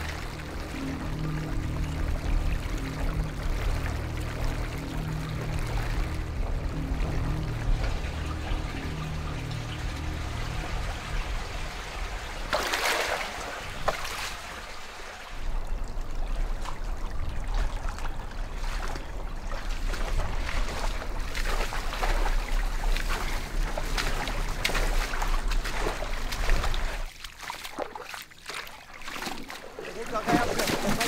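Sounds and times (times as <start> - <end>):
low steady rumble: 0.0 - 27.1
water trickling: 0.0 - 31.0.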